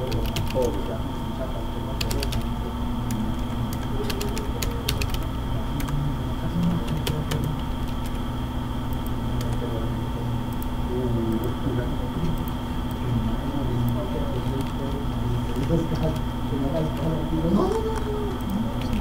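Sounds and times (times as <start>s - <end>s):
keyboard typing clicks: 0.0s - 0.8s, 2.0s - 6.0s, 6.6s - 8.2s, 8.9s - 9.7s, 13.8s - 16.3s, 17.7s - 19.0s
low hum: 0.0s - 19.0s.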